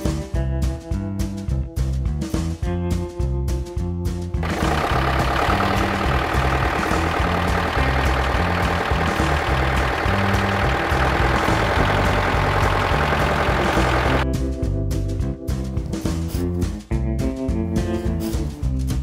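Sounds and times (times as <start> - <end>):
background music bass line: 0.0 - 19.0
tractor engine running: 4.4 - 14.2.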